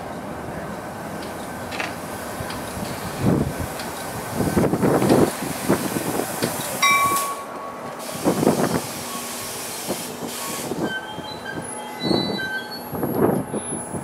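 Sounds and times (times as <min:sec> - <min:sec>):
train wheels clattering over rail joints: 0:01.2 - 0:08.9
high wheel and brake squeals: 0:10.2 - 0:14.0.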